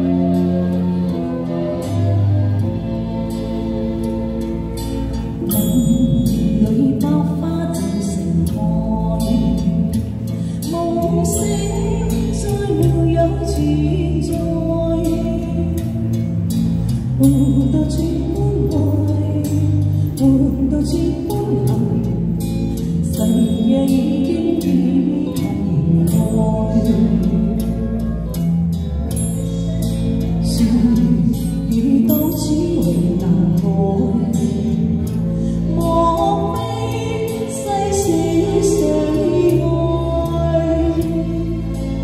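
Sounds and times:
backing track with steady beat: 0:00.0 - 0:42.0
woman singing pop ballad: 0:05.3 - 0:28.5, 0:30.2 - 0:42.0.

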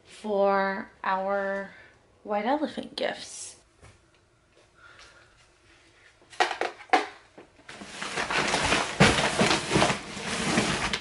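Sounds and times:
rustling and clattering of items: 0:05.6 - 0:11.0.

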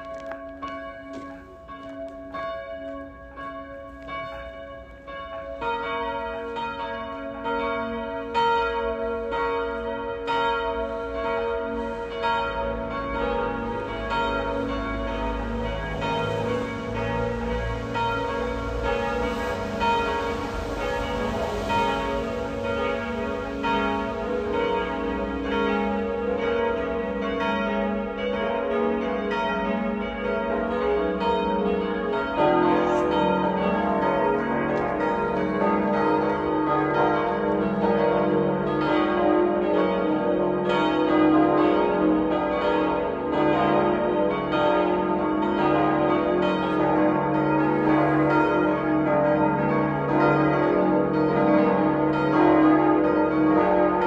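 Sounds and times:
church bells pealing: 0:00.0 - 0:54.0.

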